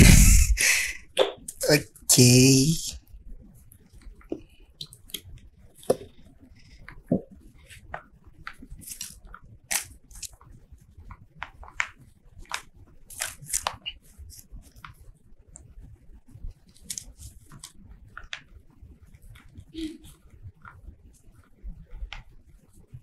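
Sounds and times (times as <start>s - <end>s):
paper rustling and crinkling: 8.4s - 10.3s, 11.6s - 14.8s.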